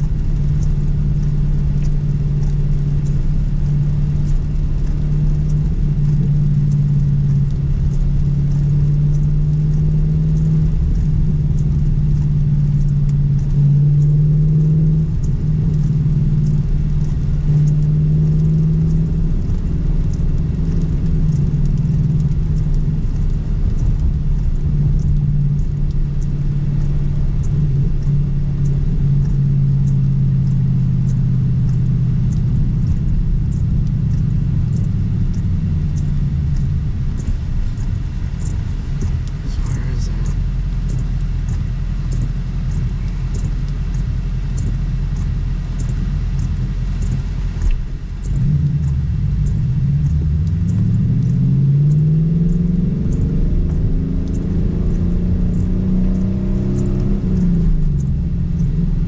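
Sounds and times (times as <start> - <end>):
car engine and road noise: 0.0 - 59.0.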